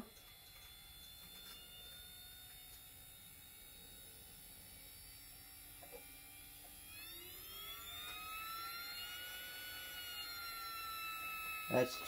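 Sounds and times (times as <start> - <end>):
electric motor whine: 0.0 - 12.0.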